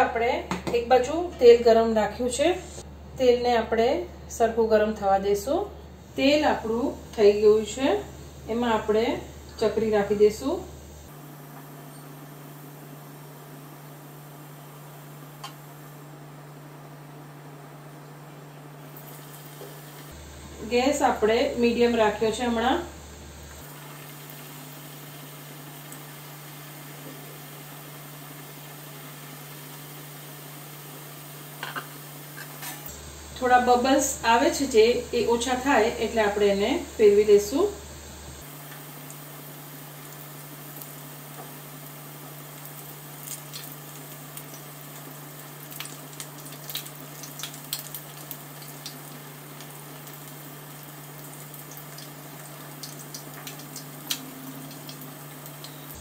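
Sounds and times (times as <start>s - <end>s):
steady low hum: 0.0s - 43.2s
oil sizzling while deep-frying: 5.1s - 56.0s
crackles and pops of oil: 15.4s - 15.7s, 42.6s - 50.4s, 51.3s - 56.0s.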